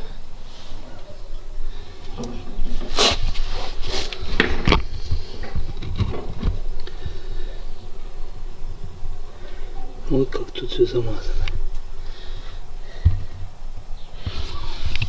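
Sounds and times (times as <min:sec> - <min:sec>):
handling scrapes and knocks: 0:02.0 - 0:06.8.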